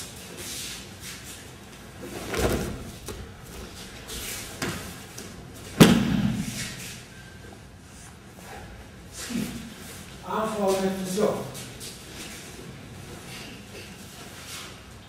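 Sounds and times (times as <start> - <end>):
bodies thudding on mats: 2.0 - 5.0.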